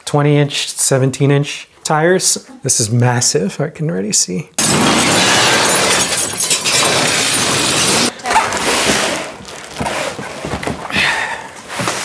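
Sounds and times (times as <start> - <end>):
glass shattering: 4.6 - 8.1
metal crunching: 4.6 - 8.1
cardboard rustling: 8.4 - 11.0.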